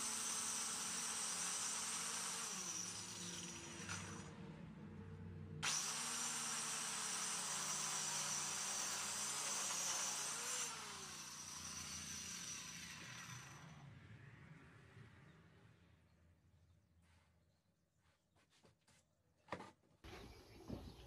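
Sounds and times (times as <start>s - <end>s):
electric saw cutting wood: 0.0s - 4.4s, 5.6s - 13.9s
motor winding down: 5.6s - 13.8s.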